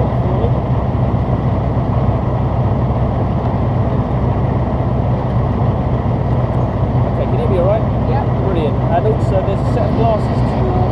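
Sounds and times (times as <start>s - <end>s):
armoured vehicle engine droning: 0.0s - 10.9s.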